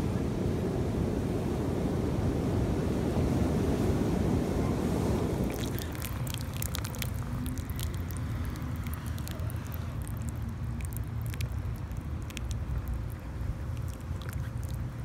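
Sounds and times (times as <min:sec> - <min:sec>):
steady low rumble: 0:04.4 - 0:15.0
water splashing and lapping: 0:05.0 - 0:15.0
small crackling clicks: 0:05.5 - 0:15.0.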